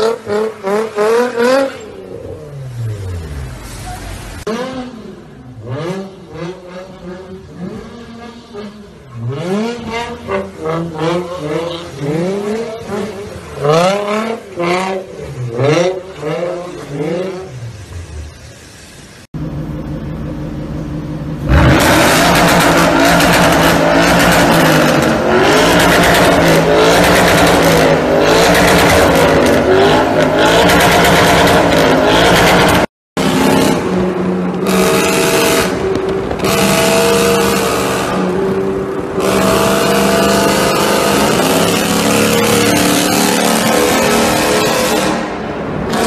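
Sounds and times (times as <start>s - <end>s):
car exhaust revving: 19.4s - 46.0s
car engine accelerating through gears: 21.4s - 33.9s.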